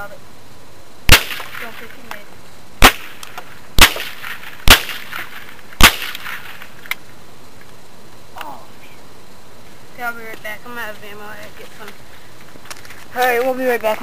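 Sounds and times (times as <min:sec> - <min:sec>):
rifle shots: 0:01.1 - 0:02.1, 0:02.8 - 0:06.8.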